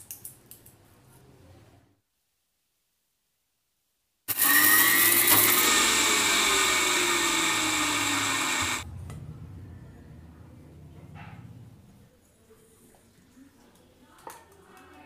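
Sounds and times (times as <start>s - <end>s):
mixer grinder motor whine: 4.3s - 8.9s
faint low hum: 8.8s - 12.7s.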